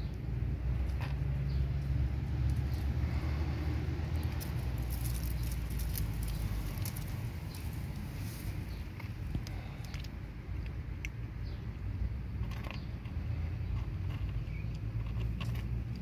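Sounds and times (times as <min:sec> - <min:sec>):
dry crackly clicks: 0:04.2 - 0:07.7, 0:08.9 - 0:11.2.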